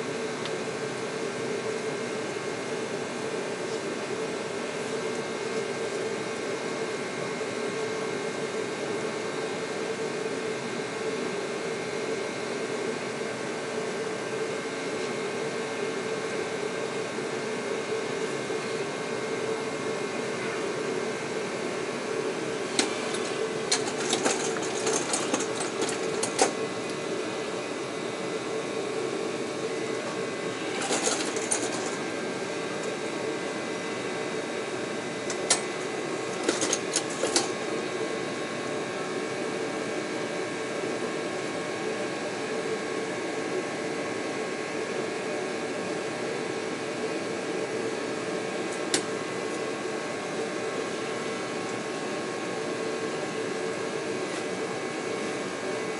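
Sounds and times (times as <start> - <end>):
machine hum: 15.9 - 39.2.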